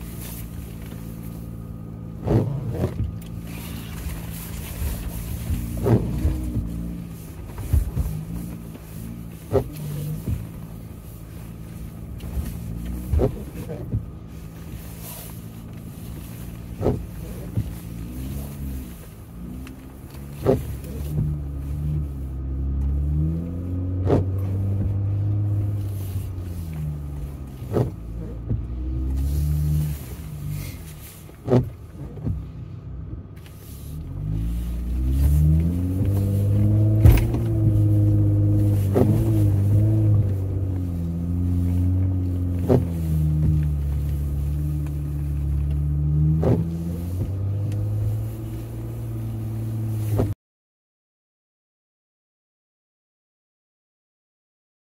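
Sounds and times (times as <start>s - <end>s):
car engine while driving: 0.0s - 50.4s.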